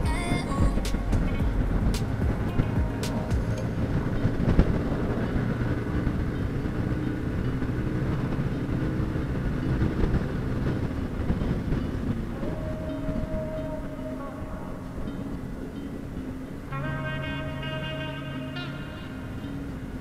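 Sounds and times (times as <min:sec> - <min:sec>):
motorcycle engine running: 0:00.0 - 0:15.3
road noise: 0:00.0 - 0:20.0
steady tone: 0:00.0 - 0:20.0
wind noise: 0:00.0 - 0:20.0.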